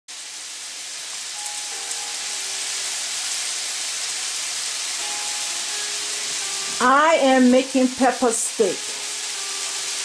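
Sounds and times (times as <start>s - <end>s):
steak sizzling in a pan: 0.1s - 10.0s.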